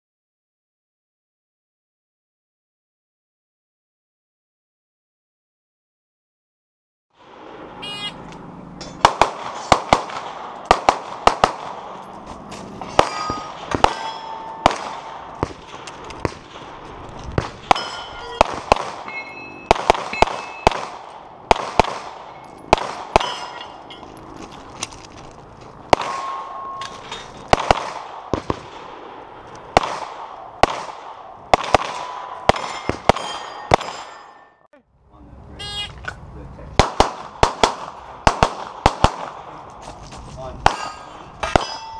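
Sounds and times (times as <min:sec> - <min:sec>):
rapid pistol shots: 0:09.0 - 0:12.0, 0:13.0 - 0:16.8, 0:17.4 - 0:19.1, 0:19.7 - 0:23.4, 0:25.9 - 0:26.5, 0:27.5 - 0:34.1, 0:36.8 - 0:39.6
steel targets ringing: 0:12.8 - 0:15.2, 0:17.6 - 0:20.8, 0:22.2 - 0:24.3, 0:26.0 - 0:27.4, 0:32.1 - 0:34.7, 0:40.7 - 0:41.9.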